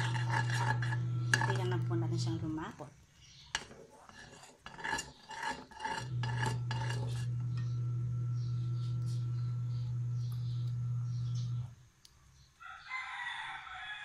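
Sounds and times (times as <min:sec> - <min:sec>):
spoon scraping a pot: 0:00.0 - 0:02.8, 0:03.4 - 0:11.6
steady low hum: 0:00.0 - 0:02.8, 0:05.9 - 0:11.8.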